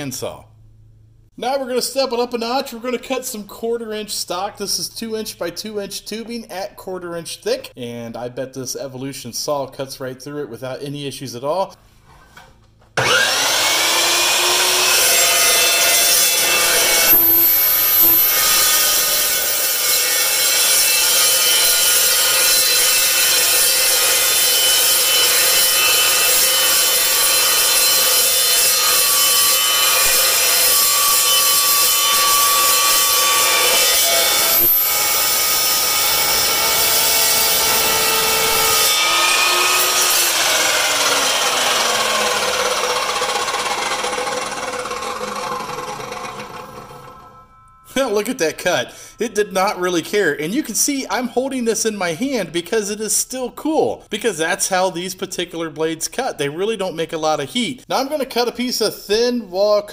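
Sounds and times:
chop saw cutting steel: 0:13.0 - 0:49.2.

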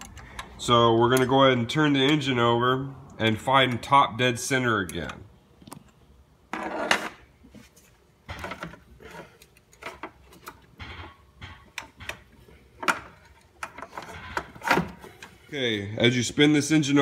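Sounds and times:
metal clicks scrapes and knocks: 0:08.3 - 0:15.4.

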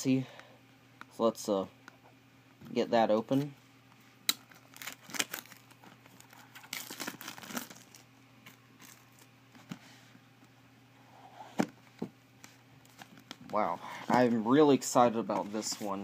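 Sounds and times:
plastic shrink wrap crinkling: 0:04.3 - 0:09.3.

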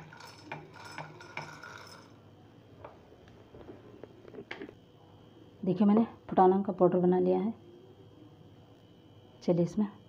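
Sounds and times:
grains rattling in metal jar: 0:00.0 - 0:02.2.

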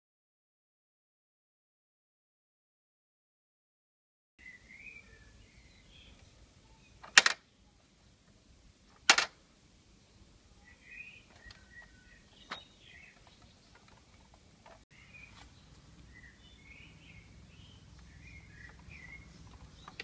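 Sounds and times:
small birds chirping: 0:04.4 - 0:20.0
sharp clicks: 0:07.0 - 0:07.4, 0:09.0 - 0:09.4, 0:17.9 - 0:20.0.

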